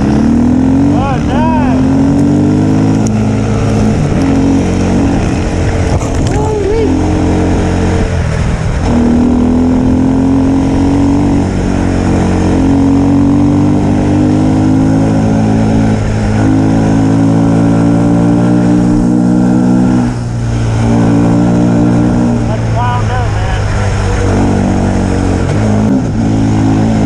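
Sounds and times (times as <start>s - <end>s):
snowmobile engine running: 0.0s - 27.0s.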